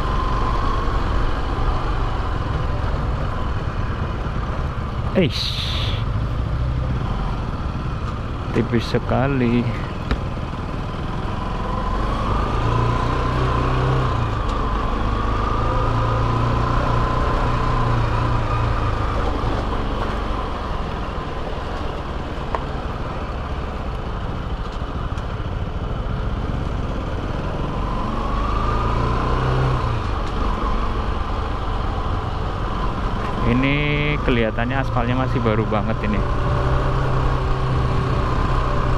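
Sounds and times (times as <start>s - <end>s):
road and wind noise: 0.0s - 38.9s.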